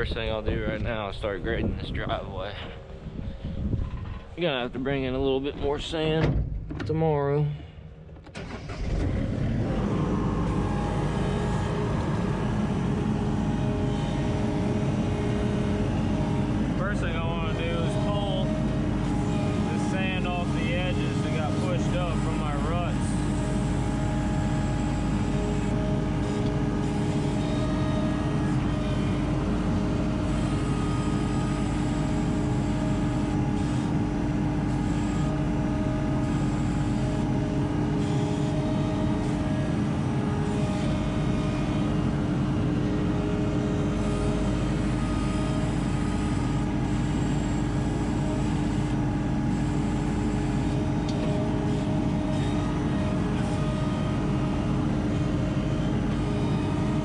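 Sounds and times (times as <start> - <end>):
diesel engine running: 7.5 - 57.0.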